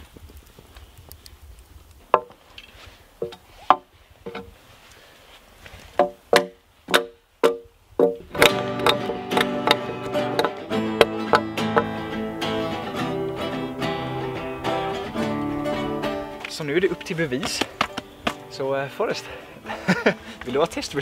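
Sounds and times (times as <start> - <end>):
guitar and banjo music: 7.5 - 21.0.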